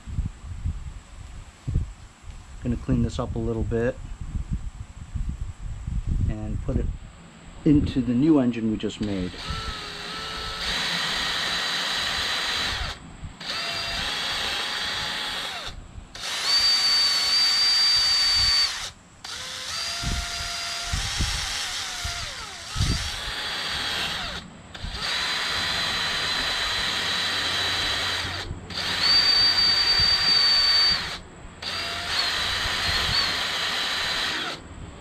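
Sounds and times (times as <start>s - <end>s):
cordless drill whining: 9.0s - 34.7s.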